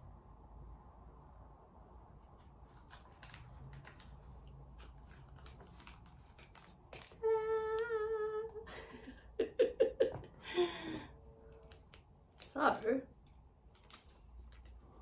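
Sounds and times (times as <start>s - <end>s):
woman humming: 7.2s - 8.8s.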